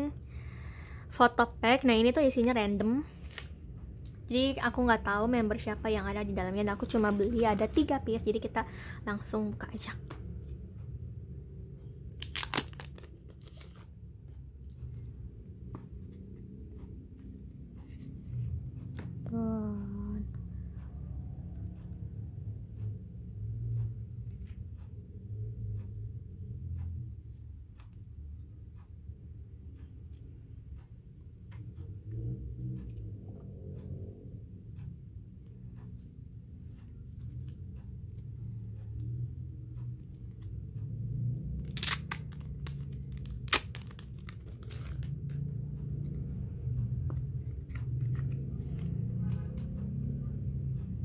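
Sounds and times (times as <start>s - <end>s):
low steady hum: 0.0s - 51.0s
packaging being torn and crinkled: 12.1s - 13.8s, 41.6s - 45.1s
packaging rustling: 12.2s - 13.8s.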